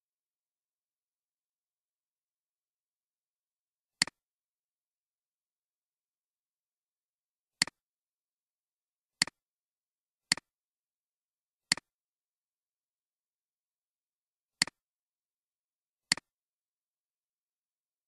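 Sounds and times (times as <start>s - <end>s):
computer mouse clicks: 10.3s - 10.5s, 11.7s - 11.9s, 16.1s - 16.3s.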